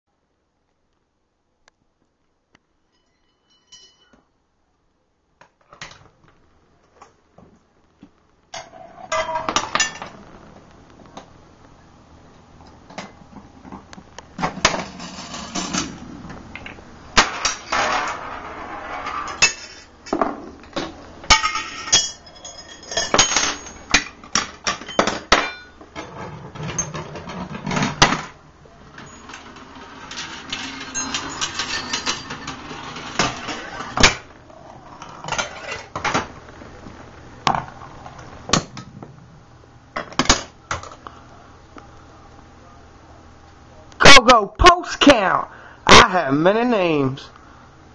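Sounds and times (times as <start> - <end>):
balls rolling along metal rails: 8.5 - 10.4, 12.9 - 39.2
clinks knocks and rattles: 21.3 - 28.3, 28.9 - 33.7.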